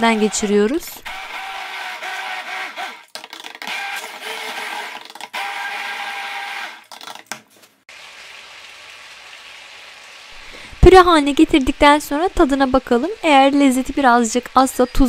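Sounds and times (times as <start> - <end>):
immersion blender whirring: 0.0 - 6.9.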